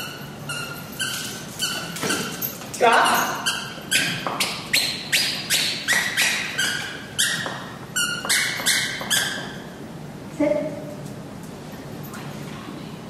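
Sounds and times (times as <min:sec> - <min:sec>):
dog toy squeaking: 0:00.0 - 0:09.7.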